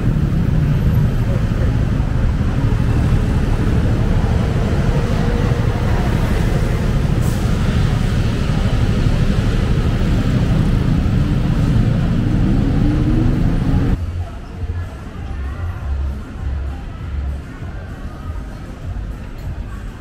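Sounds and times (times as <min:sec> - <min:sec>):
vehicle engine revving: 0:00.0 - 0:14.0
road traffic passing: 0:00.0 - 0:20.0.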